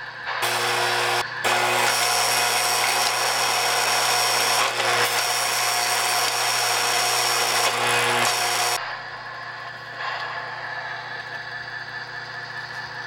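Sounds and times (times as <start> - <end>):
model sawmill electric buzz and rattle: 0.2 - 8.8.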